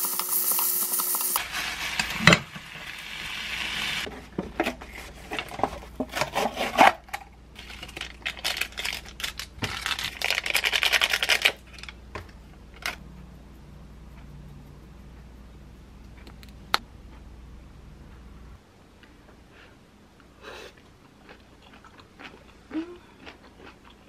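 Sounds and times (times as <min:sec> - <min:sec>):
food sizzling in a pan: 0:00.0 - 0:04.1
packets crinkling: 0:07.6 - 0:11.9.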